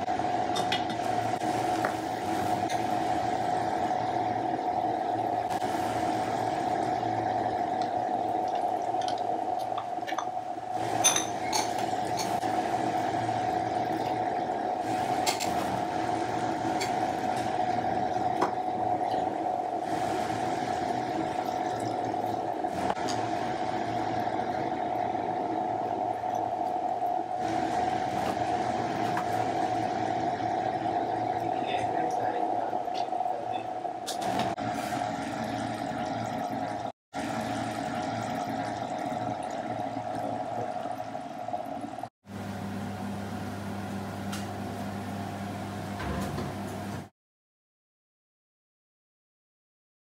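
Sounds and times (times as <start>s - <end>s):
meat simmering in a pan: 34.4s - 42.1s.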